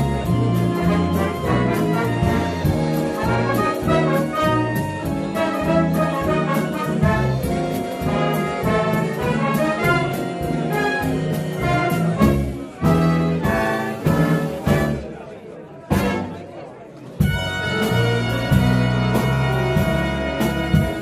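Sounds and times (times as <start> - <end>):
loud held band chord: 0.0 - 15.0
big band playing swing: 0.0 - 21.0.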